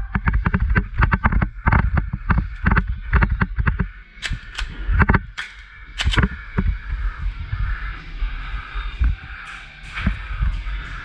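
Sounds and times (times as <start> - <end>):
airsoft gun cracks: 4.2 - 6.6.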